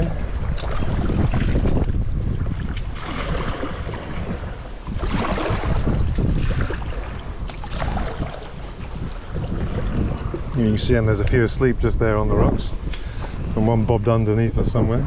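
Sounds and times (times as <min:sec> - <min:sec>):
water splashing against kayak: 0:00.0 - 0:11.3
wind buffeting microphone: 0:00.0 - 0:15.0.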